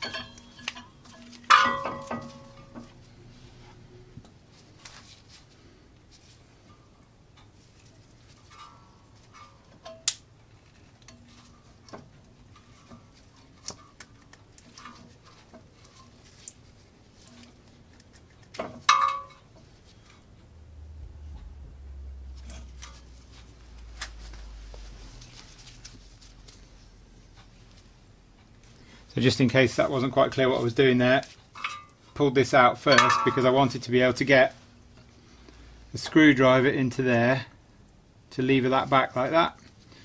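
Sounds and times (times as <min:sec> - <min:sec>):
low rumble: 0:20.2 - 0:27.0.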